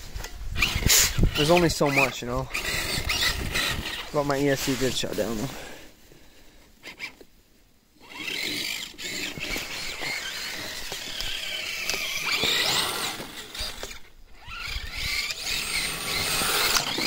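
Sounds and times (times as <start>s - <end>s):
tracks churning snow: 0.0s - 6.1s, 8.0s - 17.0s
electric motor whine: 0.6s - 4.2s, 8.0s - 17.0s.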